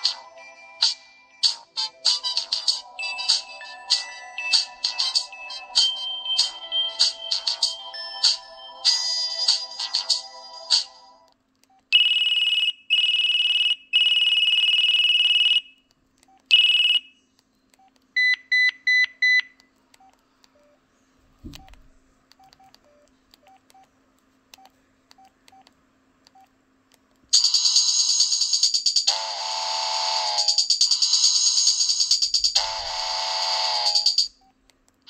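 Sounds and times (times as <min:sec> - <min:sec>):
faint keypad blips: 0:21.4 - 0:23.9.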